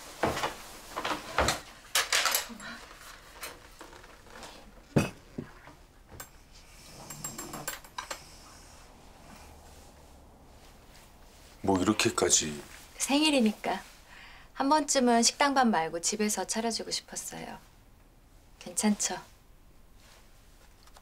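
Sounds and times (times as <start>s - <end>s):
bowls and dishes clinking: 6.2s - 8.3s.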